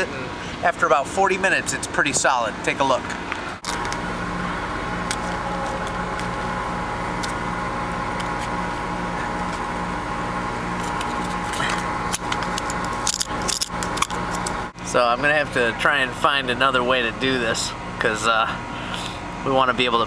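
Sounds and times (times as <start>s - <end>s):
high steady whine: 0.0s - 20.0s
machinery humming: 0.0s - 20.0s.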